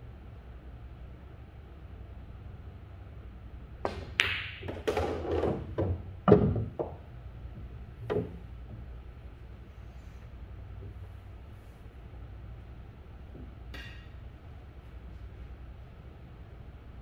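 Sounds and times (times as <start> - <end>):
ball dropping into pocket: 3.8 - 7.0
cue tip striking ball: 3.9 - 7.1
balls knocking on cushions: 3.9 - 8.9
billiard balls clacking: 3.9 - 9.0.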